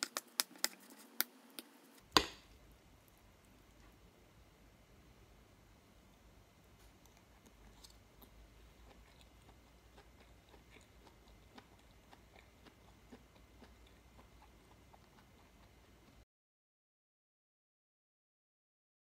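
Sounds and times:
person chewing with wet mouth clicks: 0:06.9 - 0:16.2.

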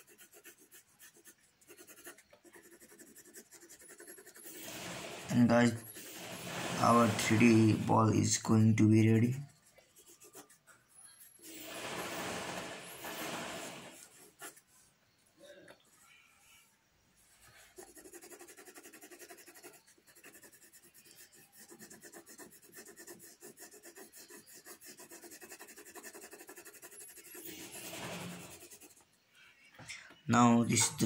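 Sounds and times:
pencil strokes scratching paper: 0:00.0 - 0:15.2, 0:17.2 - 0:29.2.

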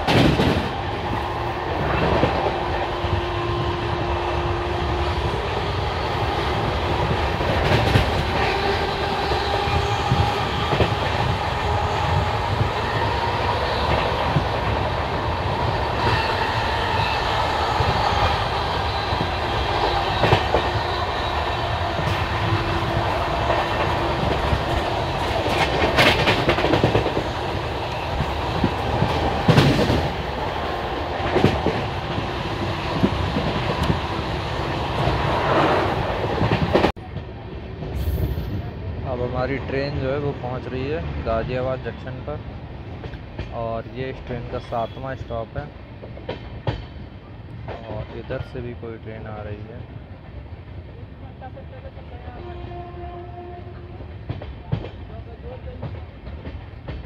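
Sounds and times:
clickety-clack over rail joints: 0:00.0 - 0:01.0, 0:01.7 - 0:03.2, 0:05.2 - 0:16.5, 0:17.6 - 0:20.8, 0:21.7 - 0:38.6, 0:42.9 - 0:48.8, 0:52.7 - 0:57.0
train wheels rumbling on rails: 0:00.0 - 0:57.0.

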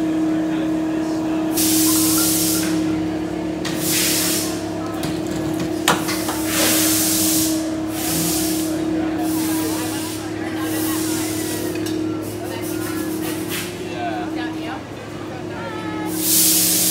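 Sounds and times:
hissing bursts: 0:16.1 - 0:16.9.

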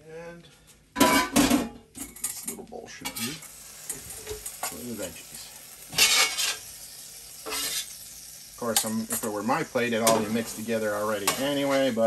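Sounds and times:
vegetables sizzling on a griddle: 0:03.0 - 0:12.0
metal spatula scraping steel: 0:05.9 - 0:06.6, 0:07.4 - 0:08.0, 0:10.0 - 0:12.0.

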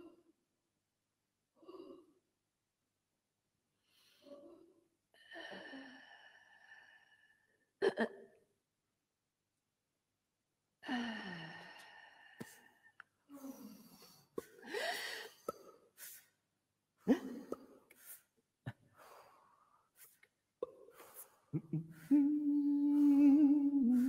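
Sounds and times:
person sighing: 0:21.0 - 0:24.0
rising vocal glide: 0:21.6 - 0:24.0.

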